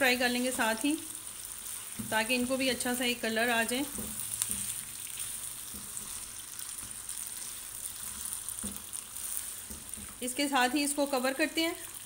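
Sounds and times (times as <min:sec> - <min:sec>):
food sizzling in hot oil: 0:00.0 - 0:12.0
spatula scraping a wok: 0:03.9 - 0:10.2.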